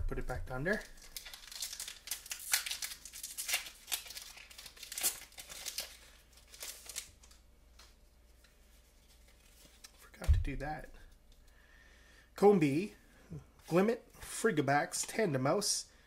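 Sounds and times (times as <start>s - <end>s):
foil wrapper tearing and crinkling: 0.7s - 7.4s.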